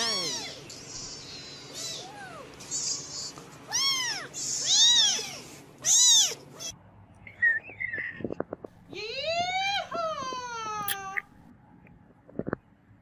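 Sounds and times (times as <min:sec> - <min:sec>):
kittens meowing: 0:00.0 - 0:00.6, 0:01.2 - 0:06.7.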